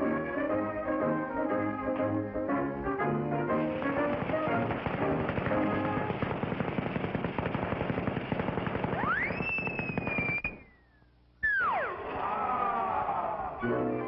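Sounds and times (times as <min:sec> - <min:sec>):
orchestral music: 0:00.0 - 0:06.2, 0:13.6 - 0:14.0
fuse crackling: 0:03.5 - 0:11.1
rising whistle: 0:09.0 - 0:11.9.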